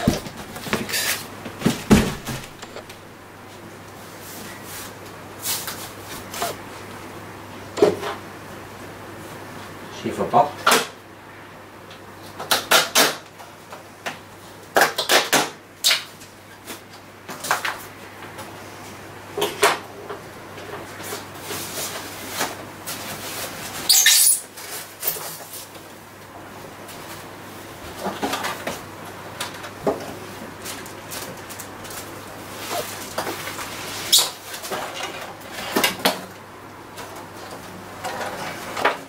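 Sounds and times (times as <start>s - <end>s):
foam packing squeaking and scraping: 0.0s - 1.3s, 23.0s - 25.6s, 32.5s - 33.1s, 33.7s - 34.6s.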